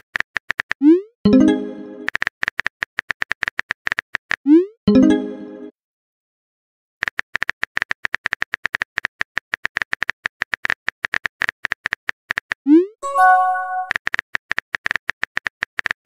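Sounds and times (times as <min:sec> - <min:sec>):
bright message alert chime: 0:01.3 - 0:02.1, 0:04.9 - 0:05.7, 0:13.0 - 0:13.9.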